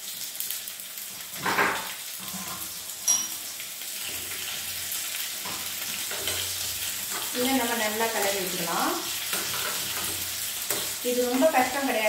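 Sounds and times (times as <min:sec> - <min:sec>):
hot oil sizzling in pan: 0:00.0 - 0:12.0
sharp clink: 0:03.1 - 0:03.4.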